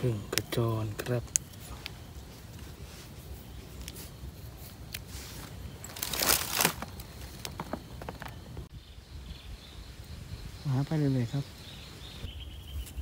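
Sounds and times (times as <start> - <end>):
sharp snaps and clicks: 0.3 - 2.0
rustling and crunching: 0.9 - 8.7.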